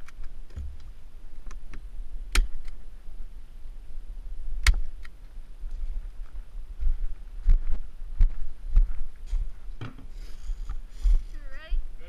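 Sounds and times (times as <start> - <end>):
steady low rumble: 0.0 - 12.0
sharp cracks: 2.3 - 2.8
footsteps on gravel: 5.6 - 11.4.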